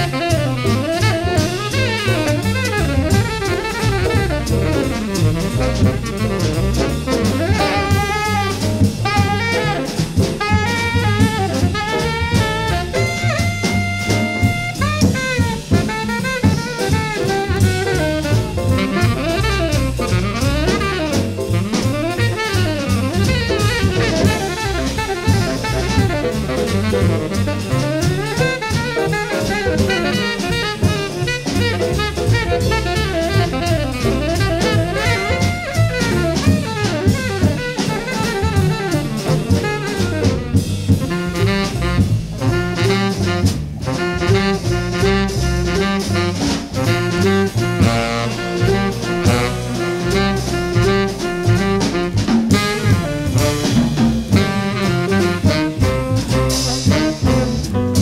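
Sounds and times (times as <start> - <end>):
bass: 0.0 - 58.0
drum kit: 0.0 - 58.0
piano: 0.0 - 58.0
tenor saxophone lines: 0.0 - 58.0.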